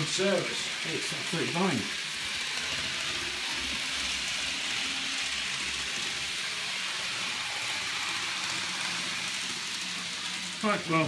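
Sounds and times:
model trains whirring on track: 0.0s - 11.0s.

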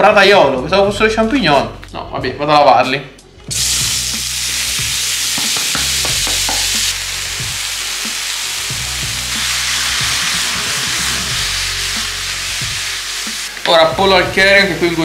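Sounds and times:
mushrooms sizzling in a frying pan: 3.5s - 15.0s.

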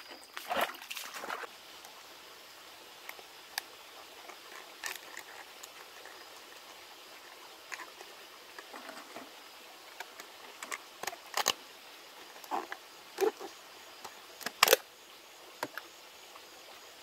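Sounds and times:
stream flowing: 0.0s - 17.0s
plastic bottles clicking and crinkling: 4.3s - 9.3s, 10.0s - 11.6s, 12.3s - 14.8s.

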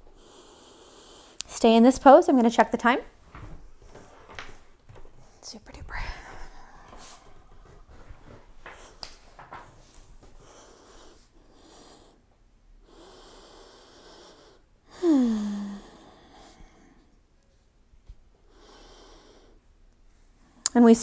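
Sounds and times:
person breathing slowly: 0.0s - 1.4s, 6.0s - 9.2s, 9.8s - 17.2s, 18.4s - 19.7s
voiced sighing exhale: 14.9s - 16.7s.

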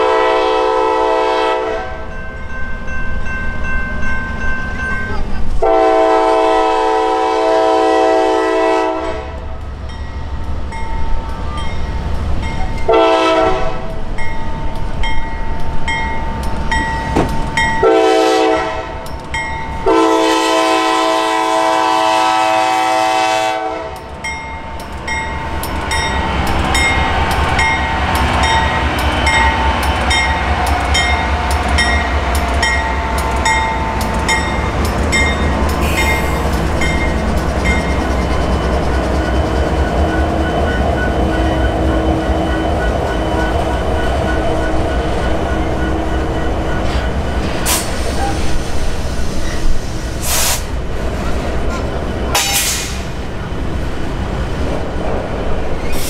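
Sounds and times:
locomotive air horn blasts: 0.0s - 2.0s, 5.6s - 9.4s, 12.9s - 13.9s, 17.8s - 19.0s, 19.8s - 24.1s
crossing bell dinging: 1.9s - 5.6s, 9.8s - 20.2s, 23.9s - 47.4s
wheels on rails: 23.9s - 49.8s.

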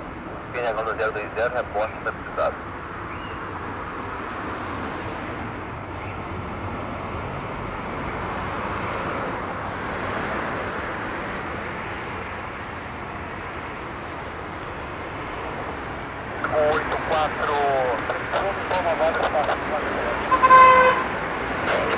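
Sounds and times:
jet engines rushing: 14.7s - 20.5s, 21.2s - 21.9s.

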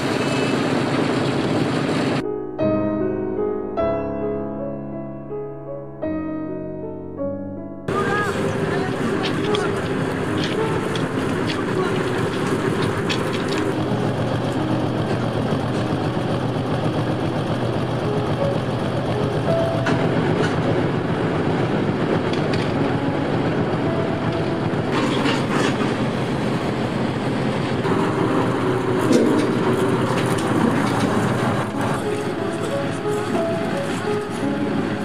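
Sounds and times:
train rail rumble: 0.0s - 2.2s, 7.9s - 35.0s
wheel squeaks and clicks: 0.0s - 2.2s, 7.9s - 21.1s, 21.9s - 26.5s, 27.7s - 35.0s.

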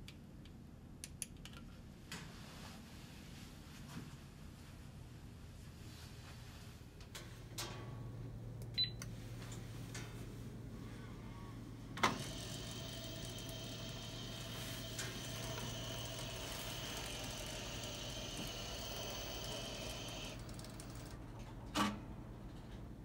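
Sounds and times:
constant low hum: 0.0s - 23.0s
conveyor belt whine: 7.4s - 23.0s.

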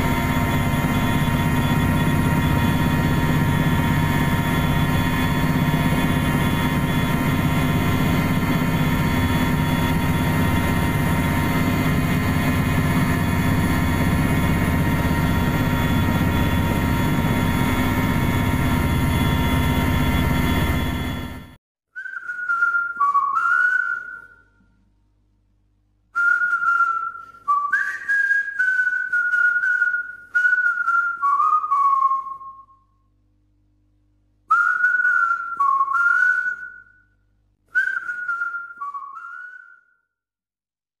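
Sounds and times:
person whistling a tune: 21.9s - 24.7s, 26.2s - 32.9s, 34.5s - 40.1s.

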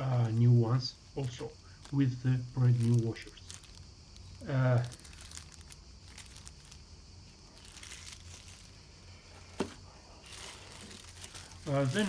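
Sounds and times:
plastic bags crinkling: 0.0s - 12.0s
small ticks and clicks: 1.1s - 8.8s.

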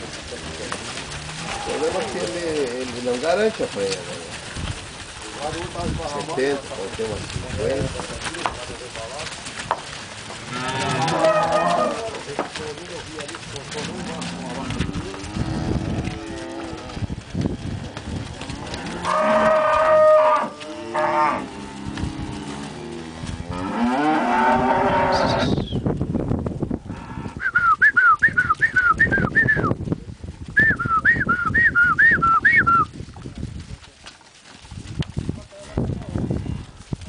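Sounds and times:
cows mooing: 0.4s - 4.0s, 10.2s - 12.3s, 13.5s - 25.6s.

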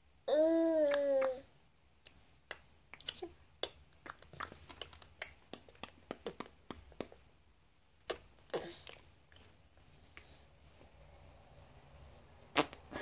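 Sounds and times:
baby mouth smacking and clicking: 0.8s - 1.4s, 2.0s - 7.2s, 8.0s - 9.4s, 12.5s - 12.8s.

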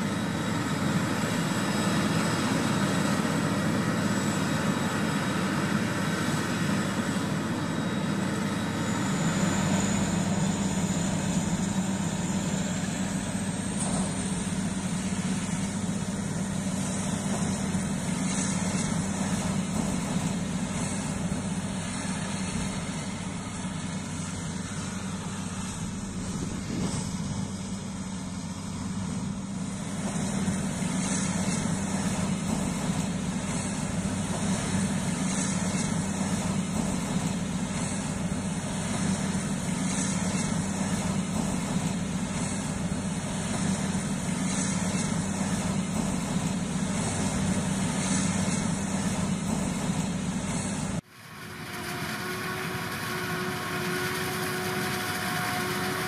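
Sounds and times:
diesel farm machinery engine drone: 0.0s - 56.0s
machine whining: 0.0s - 56.0s.

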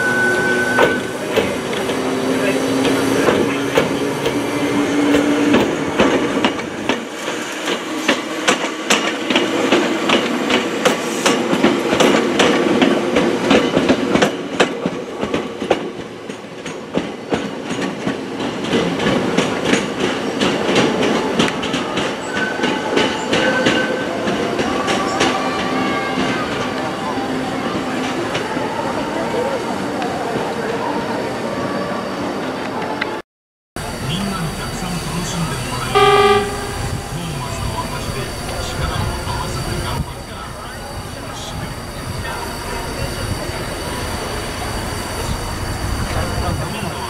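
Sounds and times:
train rumble: 0.0s - 28.7s, 33.8s - 47.0s
train wheels clicking over rail joints: 5.0s - 25.4s.

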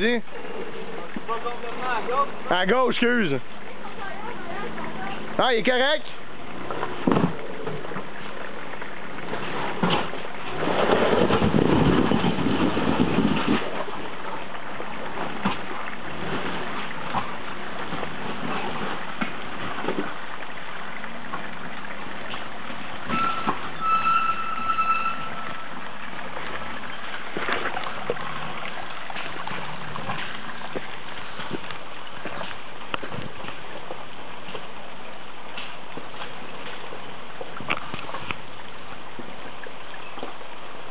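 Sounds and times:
off-road vehicle engine crawling: 0.0s - 20.2s
water trickling over rocks: 0.0s - 40.9s.

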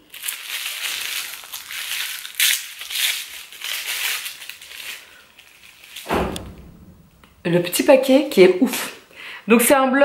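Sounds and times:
wrapping paper crinkling: 0.0s - 6.1s.

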